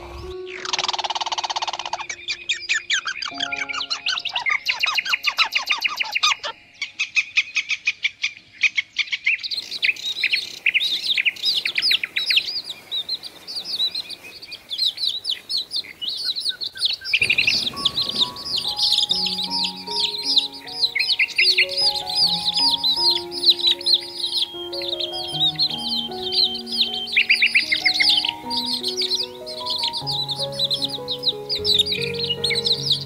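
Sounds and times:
music with held notes: 0.0s - 1.3s, 2.0s - 6.9s, 17.2s - 33.0s
birds chirping rapidly: 0.0s - 33.0s.

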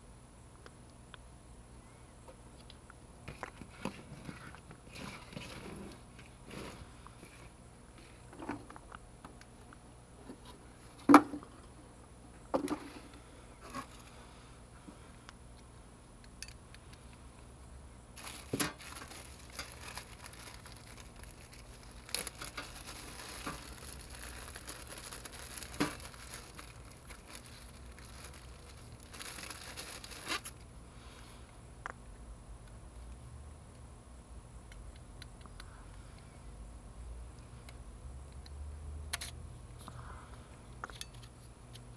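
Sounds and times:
plastic bag crinkling: 18.2s - 30.6s.

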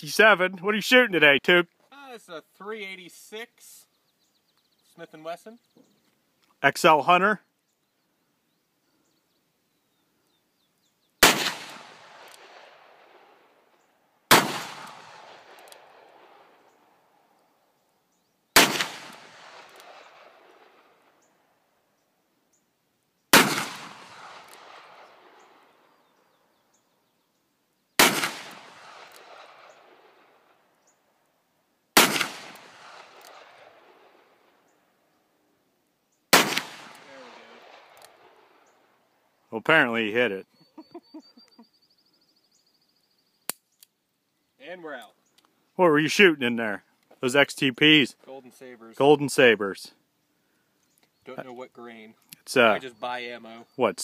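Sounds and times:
revolver shots with echo: 28.0s - 29.8s, 32.0s - 33.7s.

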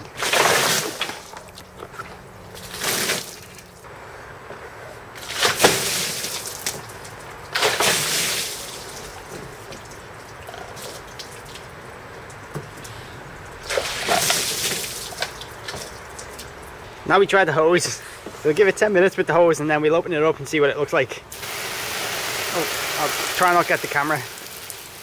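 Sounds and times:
water splashing: 0.0s - 3.9s, 5.2s - 17.0s, 21.3s - 25.0s.

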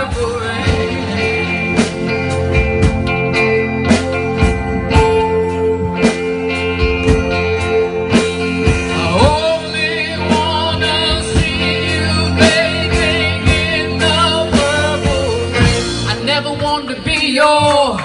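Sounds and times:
person singing: 0.0s - 1.9s, 8.7s - 18.0s
live band playing: 0.0s - 18.0s.

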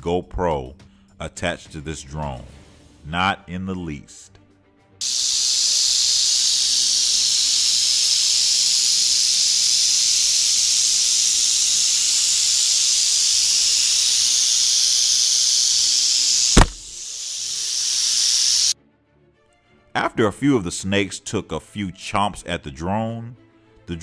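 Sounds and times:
rattlesnakes rattling: 5.0s - 18.8s
sharp knock: 16.5s - 16.9s.

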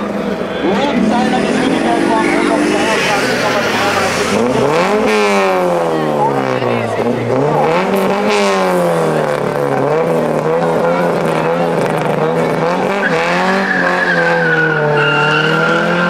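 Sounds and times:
car engine revving high: 0.0s - 16.0s
tyre squeal: 13.0s - 16.0s.

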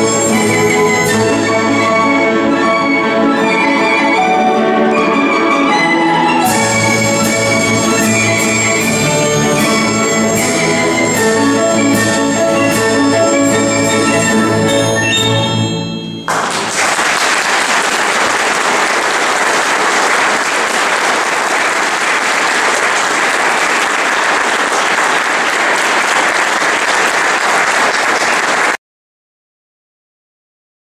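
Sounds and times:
audience applauding: 16.3s - 28.8s.

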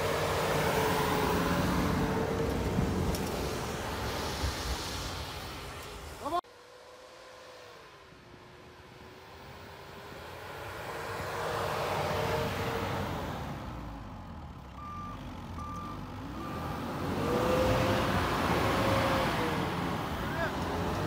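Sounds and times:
reverse warning beeps: 14.8s - 16.9s
pickup engine revving: 15.6s - 21.0s.

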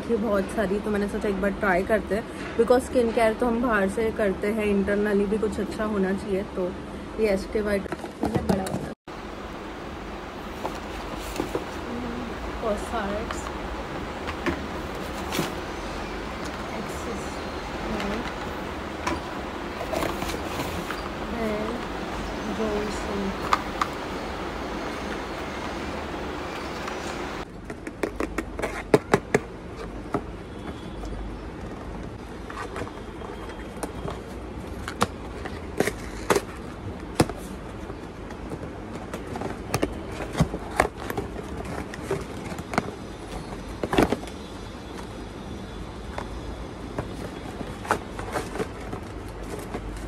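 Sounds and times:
low room noise: 0.0s - 27.6s.

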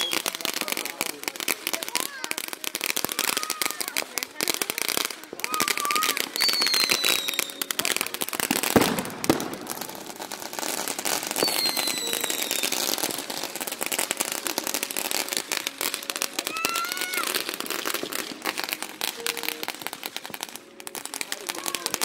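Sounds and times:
falling firework whistle: 0.0s - 0.5s, 5.4s - 10.1s, 10.8s - 13.5s
fireworks crackling: 0.0s - 22.0s
sharp firework bangs: 5.3s - 19.5s.

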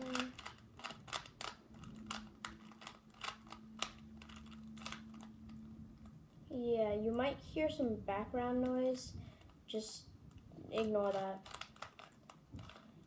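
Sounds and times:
speed cube layers clicking: 0.0s - 5.3s, 10.7s - 13.0s
faint steady hum: 0.0s - 13.0s.

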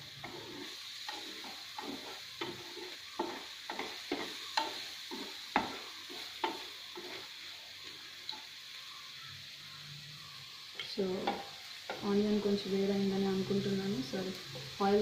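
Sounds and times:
prawns sizzling in a frying pan: 0.0s - 15.0s
spatula scraping and tapping pan: 0.1s - 7.3s, 10.8s - 12.1s.

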